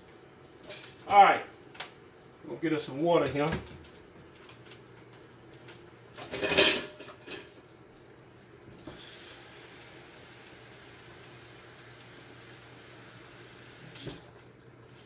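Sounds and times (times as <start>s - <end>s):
faint steady hiss: 0.0s - 15.0s
cookware clattering: 6.2s - 7.5s.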